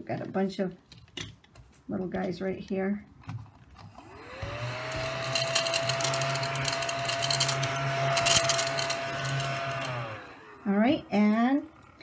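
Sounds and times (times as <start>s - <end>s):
mini vacuum motor whine: 3.9s - 12.0s.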